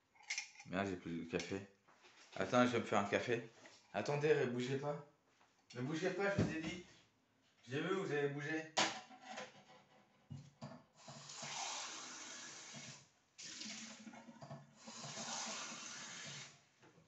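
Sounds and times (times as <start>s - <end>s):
kitchen tap running: 11.0s - 16.6s.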